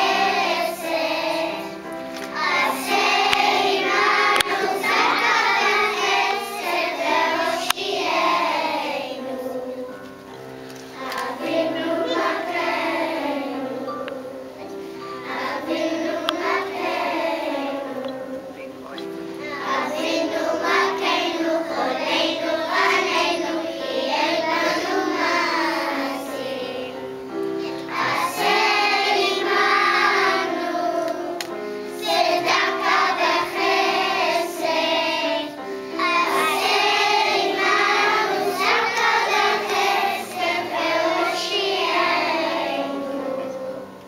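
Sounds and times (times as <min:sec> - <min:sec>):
children's choir singing: 0:00.0 - 0:44.0.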